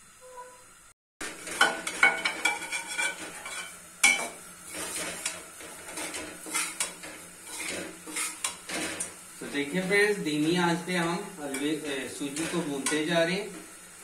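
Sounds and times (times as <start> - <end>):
spoon scraping a pan: 1.2 - 9.2, 11.5 - 13.1.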